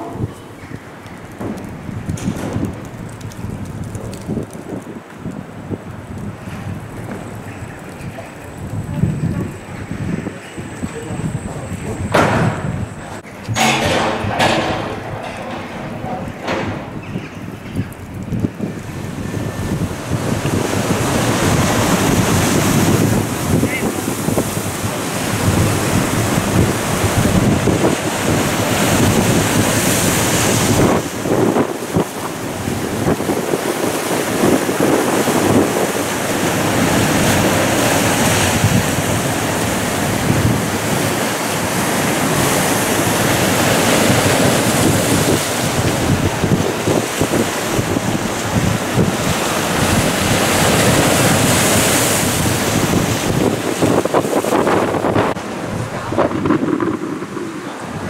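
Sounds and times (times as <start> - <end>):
waves breaking over rocks: 0.0 - 58.0
wind buffeting microphone: 0.0 - 58.0.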